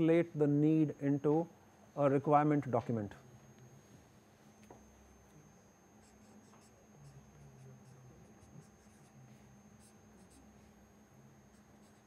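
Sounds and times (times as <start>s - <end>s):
faint high whine: 0.0s - 12.0s
marker pen scratching on paper: 6.0s - 9.2s, 9.8s - 10.5s, 11.5s - 12.0s.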